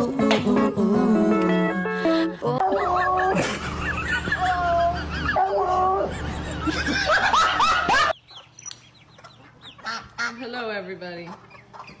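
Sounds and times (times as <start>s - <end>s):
dog howling: 2.5s - 3.5s, 4.2s - 6.3s
chickens: 7.2s - 12.0s
ducks: 7.9s - 12.0s.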